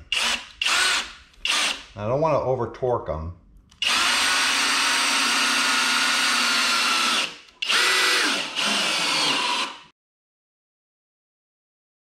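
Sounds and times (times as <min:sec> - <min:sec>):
cordless drill driving screws: 0:00.1 - 0:01.9, 0:03.8 - 0:09.9.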